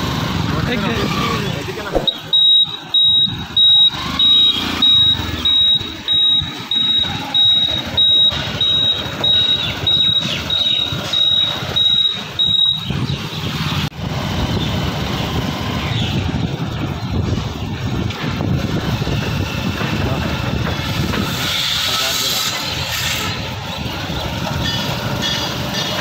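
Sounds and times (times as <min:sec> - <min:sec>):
road and engine noise: 0:00.0 - 0:26.0
traffic noise: 0:00.0 - 0:26.0
vehicle electronic beeper: 0:01.9 - 0:13.6.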